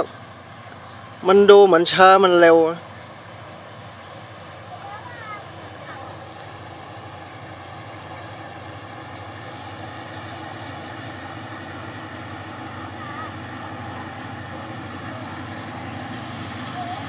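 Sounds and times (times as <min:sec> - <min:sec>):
diesel locomotive engine drone: 0:00.0 - 0:17.0.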